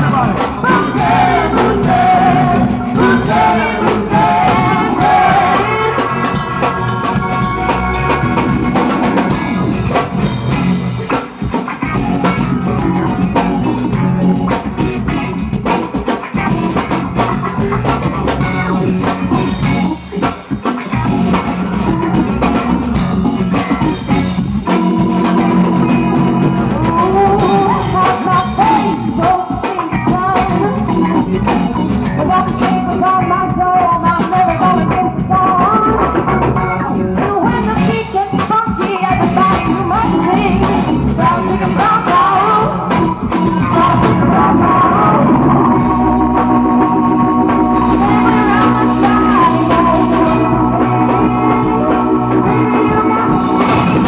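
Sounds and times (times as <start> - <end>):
rock band playing: 0.0 - 54.0
woman singing: 0.5 - 7.5, 26.7 - 36.2, 37.2 - 45.4, 47.0 - 54.0.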